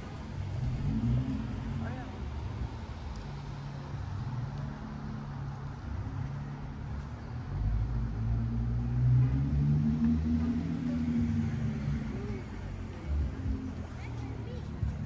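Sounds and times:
vehicle engine humming: 0:00.0 - 0:05.2.

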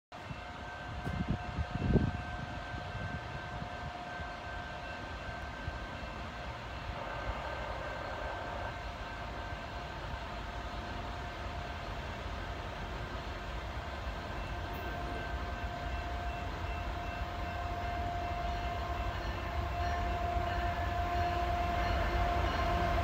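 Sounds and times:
distant train rumble: 0:00.1 - 0:23.0
wind buffeting microphone: 0:00.2 - 0:04.7.

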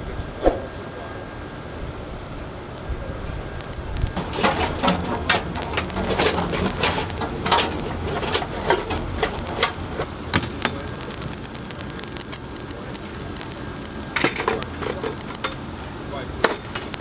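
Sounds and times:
steady low rumble: 0:00.0 - 0:17.0
metallic clicks and clanks: 0:04.1 - 0:13.1, 0:14.1 - 0:15.7, 0:16.4 - 0:17.0.

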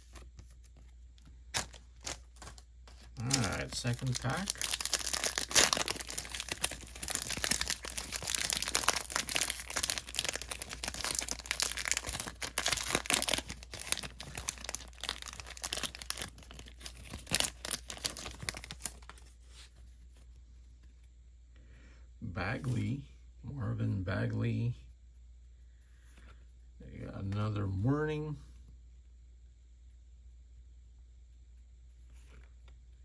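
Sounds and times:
foil wrapper crinkling and tearing: 0:01.5 - 0:19.3.

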